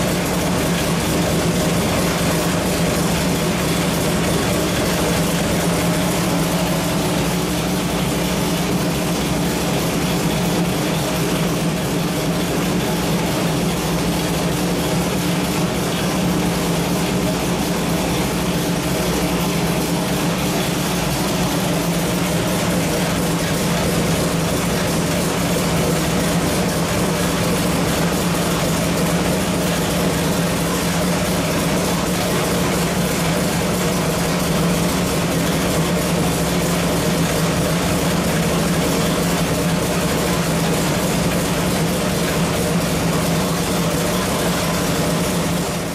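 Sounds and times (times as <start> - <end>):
engine running at steady speed: 0.0 - 45.9.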